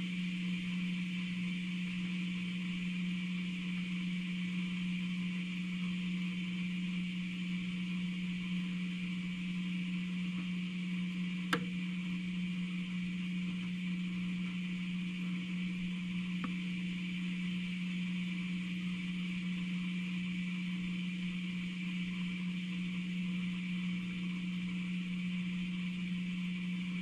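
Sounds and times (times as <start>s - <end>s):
low electrical hum with hiss: 0.0s - 27.0s
sharp click: 11.5s - 11.8s.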